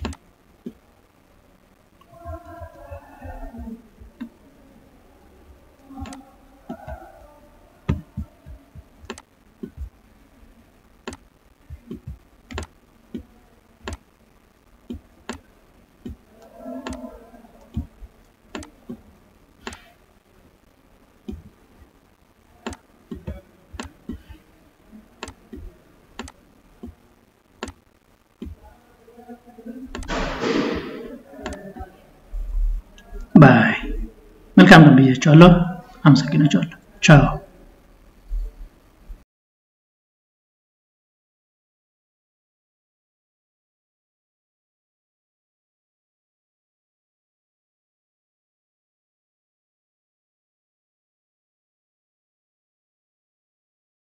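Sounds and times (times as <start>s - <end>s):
stylus tapping on screen: 7.9s - 9.9s, 27.6s - 27.8s.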